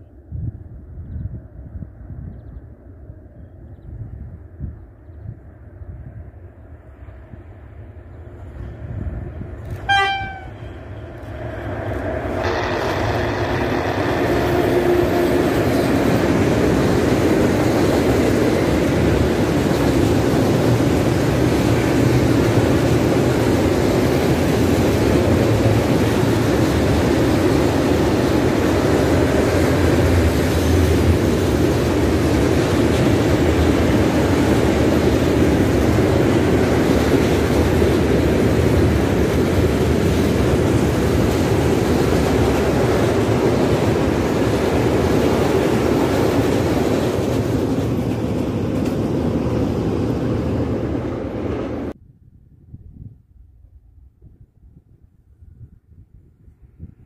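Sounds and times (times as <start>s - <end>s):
train wheels on rails: 6.8s - 52.0s
train horn blast: 9.7s - 10.8s, 12.4s - 15.9s.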